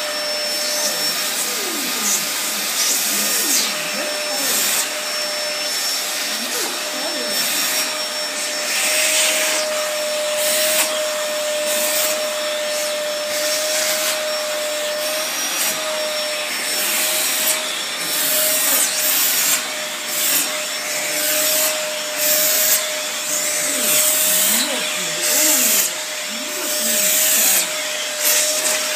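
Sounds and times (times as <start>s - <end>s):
vacuum cleaner motor whine: 0.0s - 28.9s
vacuum nozzle rubbing on fur: 0.0s - 28.9s.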